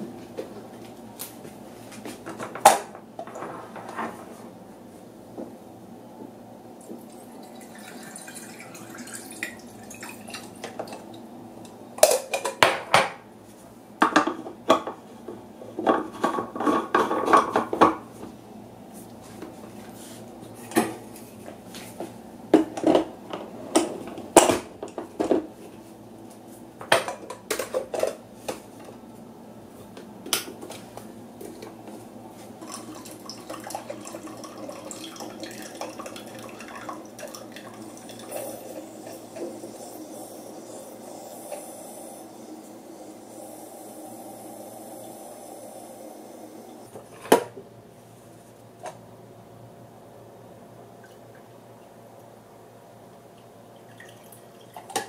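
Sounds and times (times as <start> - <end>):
espresso machine brewing hiss: 37.8 - 47.1.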